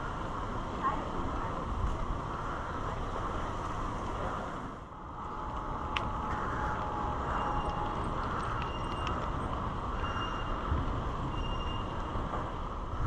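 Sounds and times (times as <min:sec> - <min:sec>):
bicycle tyre rumble on asphalt: 0:00.0 - 0:13.0
wind noise on microphone: 0:00.0 - 0:13.0.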